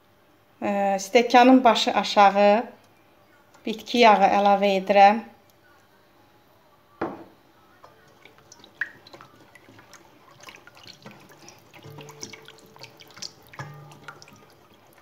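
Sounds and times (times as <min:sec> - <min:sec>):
knock: 0:07.0 - 0:07.3
whisk ticking against bowl: 0:07.8 - 0:15.0
liquid sloshing and splashing: 0:07.9 - 0:15.0.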